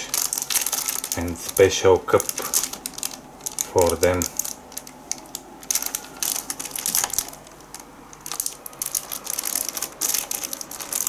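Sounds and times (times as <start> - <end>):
cellophane crinkling: 0.0 - 11.0.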